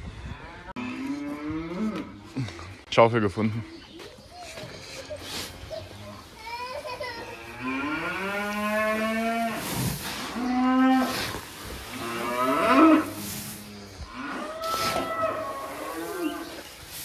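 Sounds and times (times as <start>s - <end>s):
cattle mooing: 11.9s - 16.5s.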